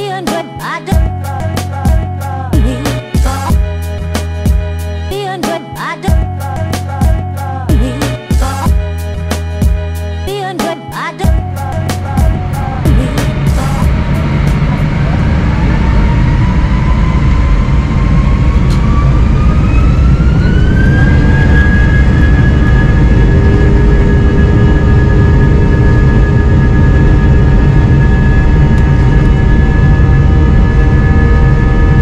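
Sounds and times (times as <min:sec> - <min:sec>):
jet engines at takeoff power: 0:11.4 - 0:32.0.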